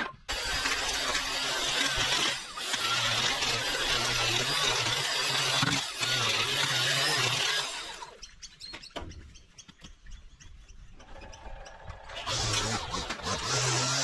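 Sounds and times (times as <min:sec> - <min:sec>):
line trimmer running: 0:00.3 - 0:08.1, 0:11.9 - 0:14.0
birds chirping: 0:07.8 - 0:13.0
motor starting up: 0:11.0 - 0:14.0.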